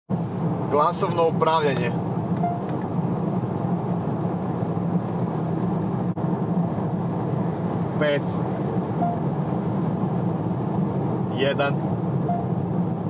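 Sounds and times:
car road and engine noise: 0.1s - 13.0s
short faint beep: 2.4s - 2.7s, 9.0s - 9.3s, 12.2s - 12.5s.

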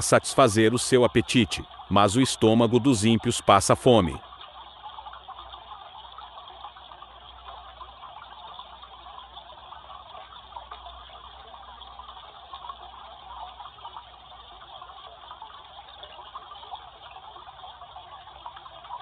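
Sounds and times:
waterfall roaring: 0.0s - 1.2s.

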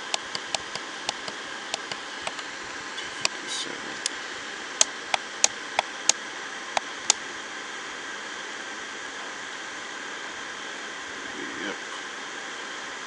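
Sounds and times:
alarm clock buttons clicking: 0.0s - 2.0s
steady hiss: 0.0s - 13.0s.

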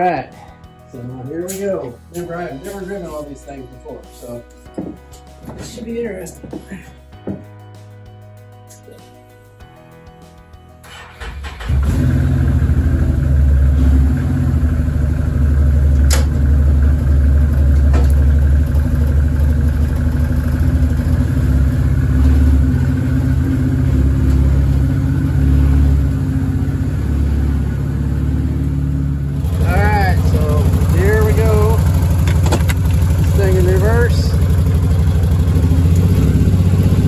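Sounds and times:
engine cranking and running: 10.8s - 25.4s, 29.4s - 37.0s.

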